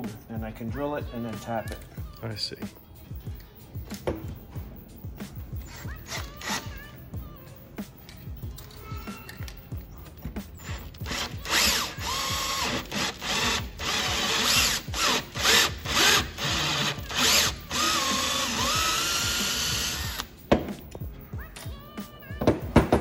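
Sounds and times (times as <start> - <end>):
cordless drill boring: 10.6 - 20.3.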